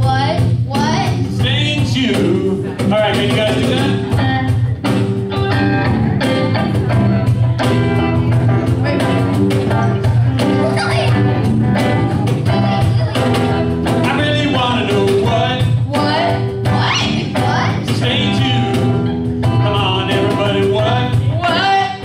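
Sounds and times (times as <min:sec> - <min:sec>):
live rock band playing: 0:00.0 - 0:22.0
man singing into a microphone: 0:01.2 - 0:04.2, 0:13.9 - 0:22.0.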